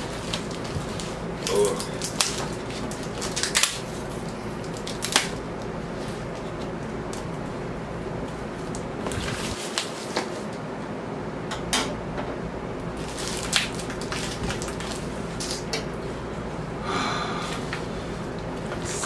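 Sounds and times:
low background hum: 0:00.0 - 0:19.0
cardboard rustling and scraping: 0:09.0 - 0:10.5.

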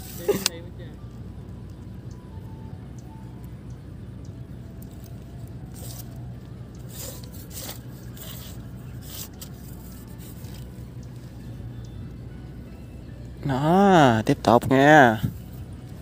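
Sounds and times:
steady low hum: 0:00.0 - 0:16.0
scraping rustles: 0:05.0 - 0:11.3.

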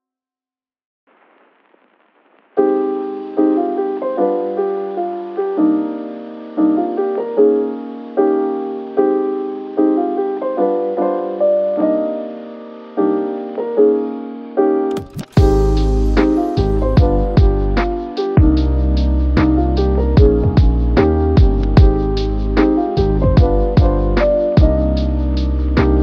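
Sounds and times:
faint hiss: 0:01.1 - 0:14.5
soft piano music: 0:02.6 - 0:26.0.

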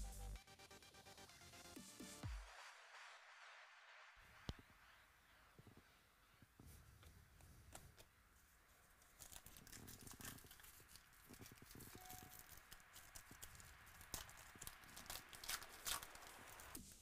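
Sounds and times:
foil wrapper tearing and crinkling: 0:08.9 - 0:16.8.

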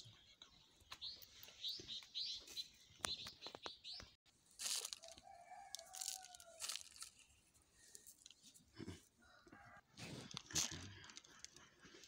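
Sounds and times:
small birds chirping: 0:00.0 - 0:04.2
rooster crowing: 0:05.1 - 0:06.6.

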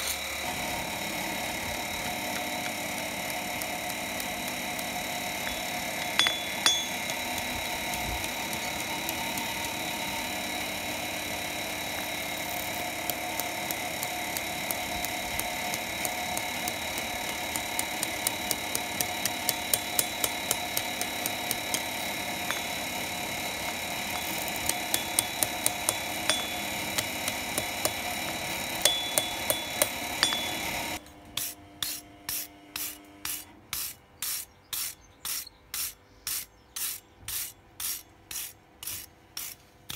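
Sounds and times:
hammer tapping steel on anvil: 0:05.4 - 0:09.8, 0:13.0 - 0:33.4
wire brush scrubbing metal: 0:12.6 - 0:30.6, 0:31.4 - 0:39.6.

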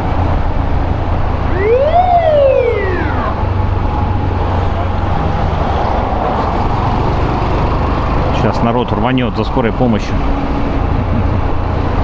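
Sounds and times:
road noise: 0:00.0 - 0:12.0
ambulance siren wail: 0:01.4 - 0:04.1.

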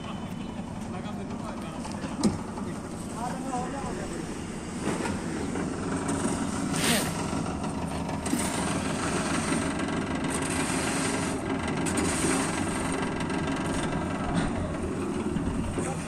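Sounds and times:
concrete machinery rumbling: 0:00.0 - 0:16.0.

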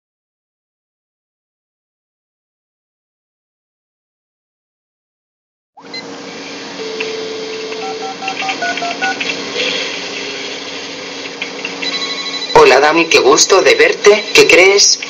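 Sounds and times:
machine hum: 0:05.8 - 0:15.0
telephone keypad beeps: 0:06.8 - 0:09.3, 0:11.8 - 0:12.9, 0:13.6 - 0:14.9.

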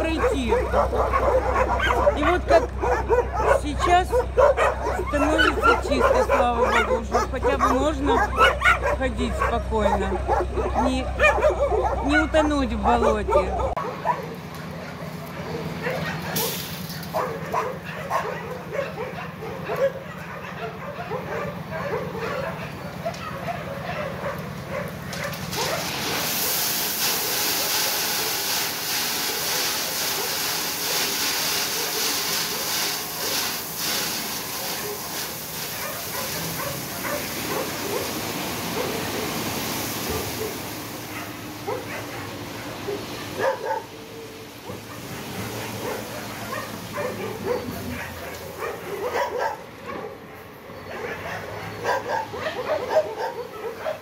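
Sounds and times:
dogs barking: 0:00.0 - 0:26.3, 0:29.3 - 0:54.0
truck engine running: 0:00.0 - 0:49.2
gravel pouring from truck bed: 0:16.3 - 0:17.2, 0:24.9 - 0:41.6.

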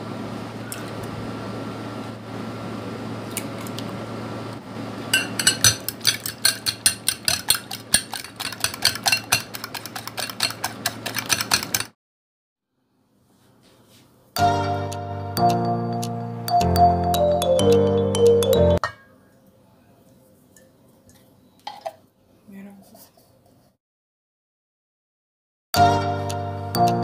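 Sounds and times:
whisk clicking against glass bowl: 0:05.2 - 0:11.9.

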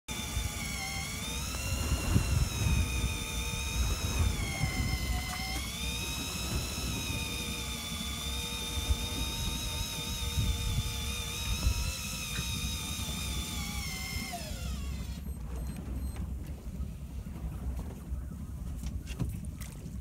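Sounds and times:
electric fishing reel motor whining: 0:00.1 - 0:15.8.

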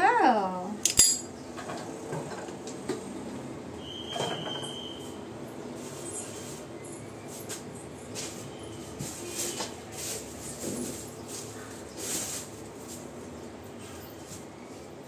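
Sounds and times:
utensils clinking: 0:00.8 - 0:01.8.

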